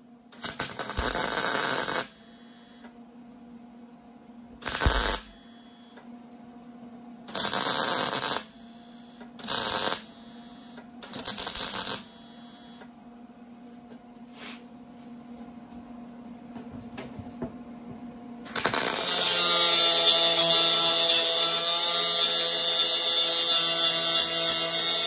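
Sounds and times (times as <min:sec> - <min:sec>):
electrical hum: 0:00.0 - 0:25.0
welder crackling bursts: 0:00.3 - 0:02.2, 0:04.6 - 0:05.4, 0:07.3 - 0:08.6, 0:09.4 - 0:10.2, 0:11.0 - 0:12.2, 0:18.4 - 0:25.0.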